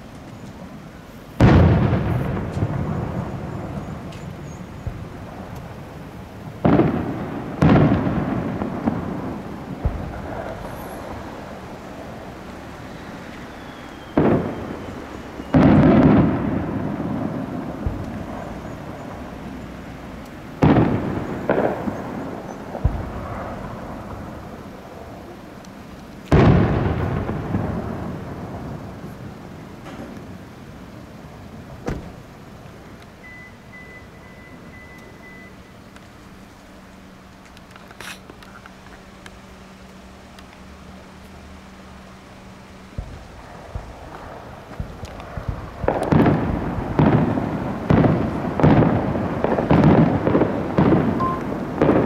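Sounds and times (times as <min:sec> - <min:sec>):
fireworks booming: 0:00.0 - 0:33.7, 0:41.0 - 0:52.0
rolling rumble: 0:00.0 - 0:52.0.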